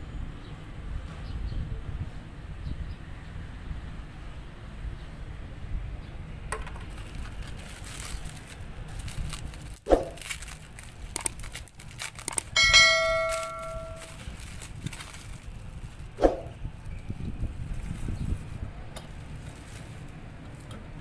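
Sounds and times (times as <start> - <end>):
bubble wrap crinkling: 6.6 - 20.7
bell-like ding: 12.6 - 14.1.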